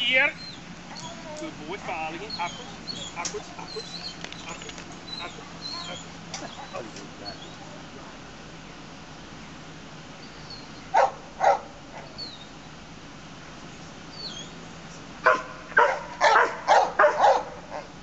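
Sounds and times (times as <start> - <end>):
dog barking: 0.4 - 7.8, 10.9 - 12.2, 15.2 - 17.9.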